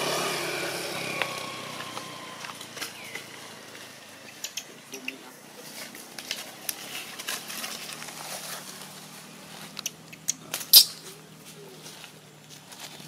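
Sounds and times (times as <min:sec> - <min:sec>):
dry leaves rustling: 0:00.0 - 0:13.0.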